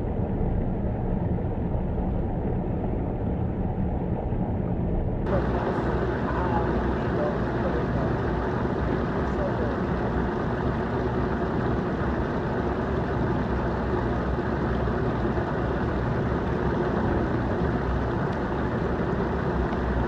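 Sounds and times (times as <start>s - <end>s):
hot tub jets churning water: 5.3s - 20.0s.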